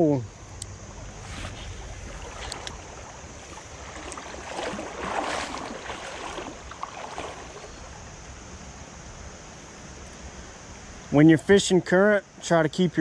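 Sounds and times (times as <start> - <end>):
creek water running: 0.0 - 10.4
water splashing: 1.0 - 8.1.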